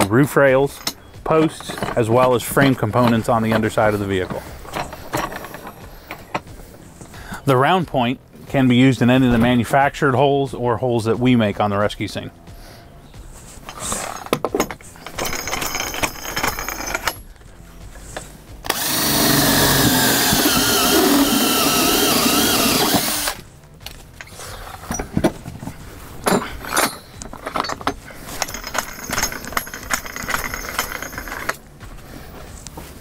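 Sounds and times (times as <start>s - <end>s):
cordless drill boring sheet metal: 18.7s - 23.4s
clicks and rattles: 23.8s - 31.6s.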